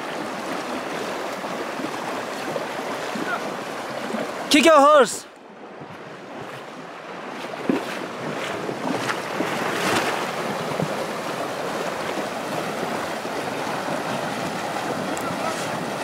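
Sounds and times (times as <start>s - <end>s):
horses splashing through water: 0.0s - 16.0s
river rushing: 0.0s - 16.0s
wind on microphone: 7.6s - 16.0s.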